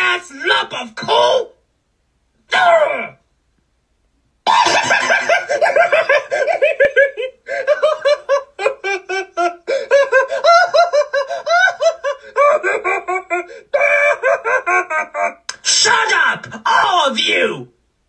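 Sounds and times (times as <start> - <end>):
high-pitched laughing: 4.5 - 15.6.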